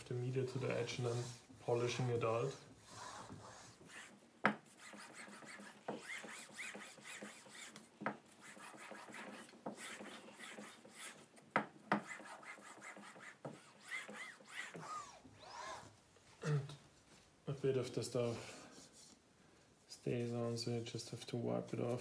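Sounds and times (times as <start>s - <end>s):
acrylic sheet rasping on cloth: 2.8s - 11.3s, 12.0s - 15.9s.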